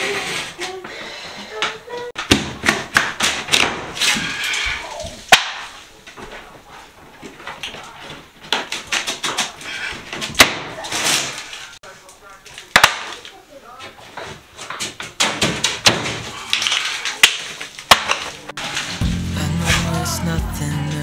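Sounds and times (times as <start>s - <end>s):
drywall cracking and crunching: 7.2s - 11.8s, 12.4s - 18.9s.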